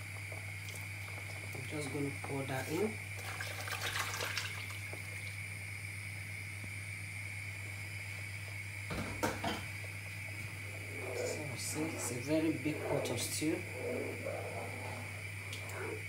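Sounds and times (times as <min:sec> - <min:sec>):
background hum: 0:00.0 - 0:16.0
liquid pouring and splashing into pot: 0:03.2 - 0:04.8.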